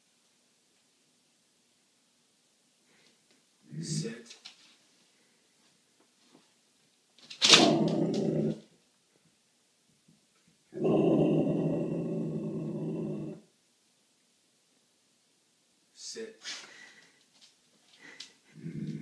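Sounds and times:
puppy growling: 0:07.4 - 0:08.7, 0:10.8 - 0:13.5, 0:18.5 - 0:19.0.

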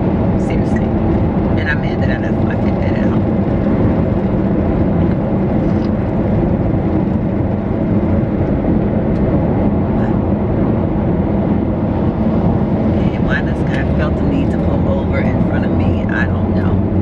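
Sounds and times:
car engine rumble: 0:00.0 - 0:17.0
road noise: 0:00.0 - 0:17.0.

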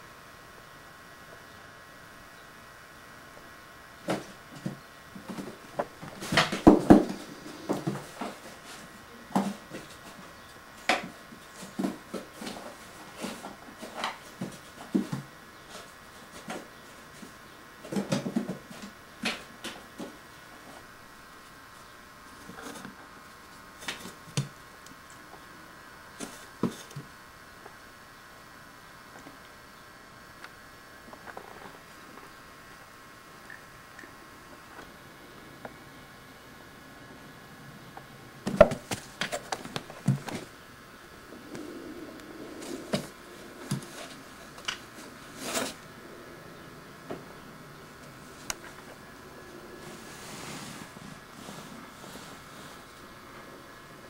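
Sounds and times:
scratching scrape: 0:45.0 - 0:45.8, 0:49.8 - 0:52.9.

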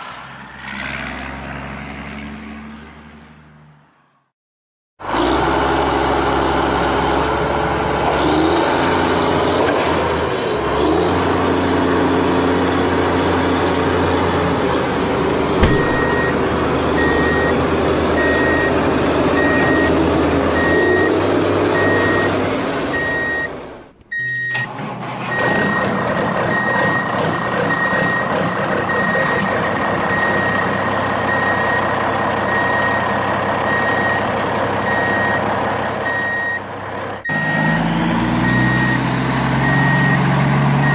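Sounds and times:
truck engine running: 0:05.0 - 0:40.9
reversing alarm beeping: 0:15.6 - 0:16.4, 0:17.0 - 0:17.6, 0:18.2 - 0:18.8, 0:19.4 - 0:20.0, 0:20.6 - 0:21.2, 0:21.8 - 0:24.7, 0:25.3 - 0:29.4, 0:30.1 - 0:33.0, 0:33.7 - 0:35.4, 0:36.0 - 0:36.6, 0:37.2 - 0:40.9.

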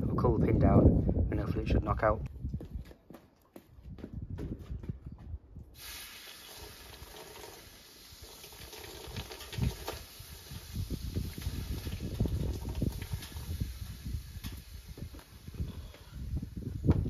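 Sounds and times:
water hissing on hot metal: 0:05.8 - 0:17.0.

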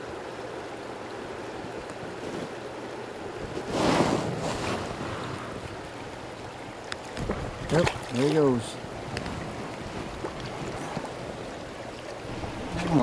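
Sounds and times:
river current running: 0:00.0 - 0:13.0
splashy whoosh of water: 0:12.0 - 0:13.0.

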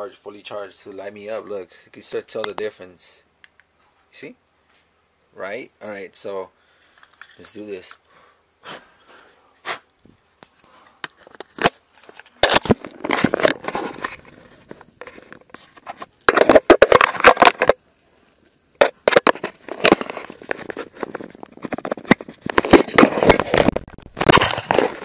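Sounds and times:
rustling and crinkling: 0:06.8 - 0:08.1, 0:09.0 - 0:25.0
sharp clicks and knocks: 0:18.8 - 0:25.0.

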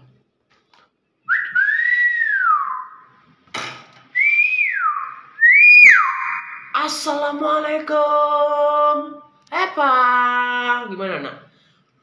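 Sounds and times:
myna whistling: 0:01.3 - 0:03.2, 0:04.2 - 0:06.8.

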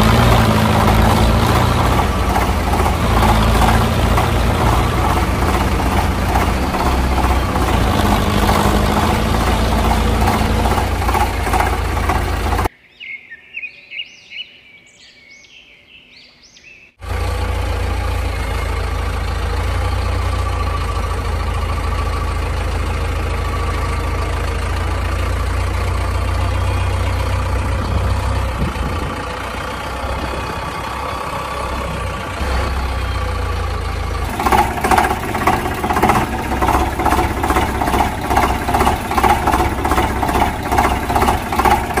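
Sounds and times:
tractor engine rumbling: 0:00.0 - 0:12.7, 0:17.0 - 0:42.0
birds chirping: 0:00.0 - 0:17.0.

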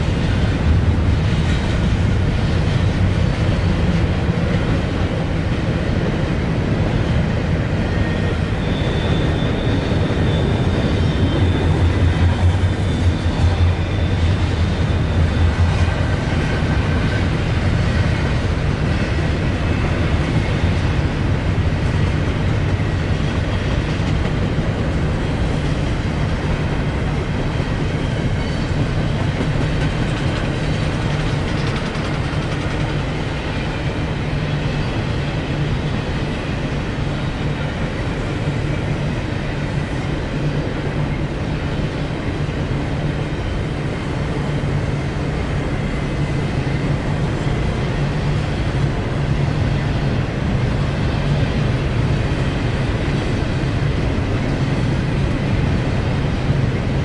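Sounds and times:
freight train wheels rumbling: 0:00.0 - 0:57.0
high wheel squeal: 0:08.0 - 0:15.3.

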